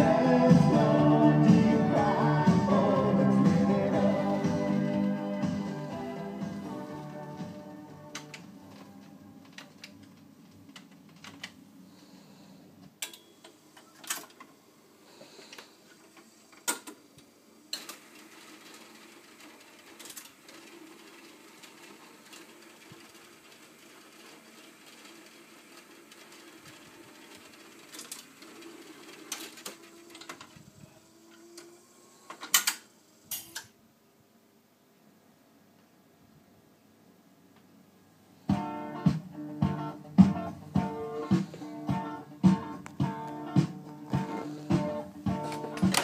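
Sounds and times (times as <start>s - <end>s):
song playing: 0.0s - 9.5s, 38.5s - 46.0s
mechanism clicks and clunks: 8.1s - 11.6s, 13.0s - 14.5s, 16.5s - 17.0s, 17.7s - 18.0s, 19.9s - 20.8s, 27.8s - 28.5s, 32.3s - 33.8s, 45.5s - 46.0s
record changer motor running: 17.6s - 32.4s.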